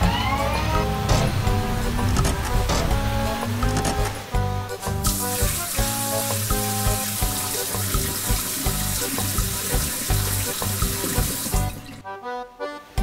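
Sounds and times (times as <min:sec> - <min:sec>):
background music with beat: 0:00.0 - 0:13.0
water spraying hiss: 0:04.8 - 0:11.9.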